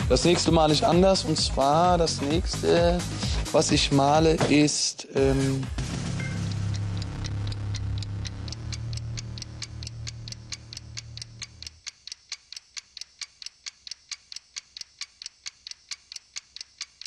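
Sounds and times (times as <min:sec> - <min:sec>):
clock ticking sound effect: 0:05.2 - 0:17.0.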